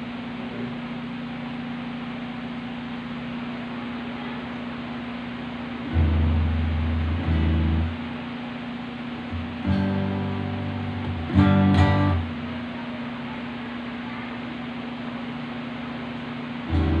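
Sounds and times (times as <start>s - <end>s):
electrical hum: 0.0s - 17.0s
electric guitar notes plucked: 5.6s - 12.9s, 16.6s - 17.0s.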